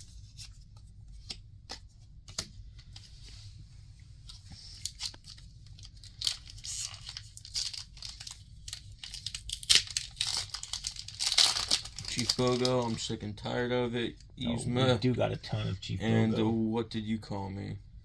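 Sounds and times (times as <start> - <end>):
foil wrapper crinkling and tearing: 4.8 - 13.1.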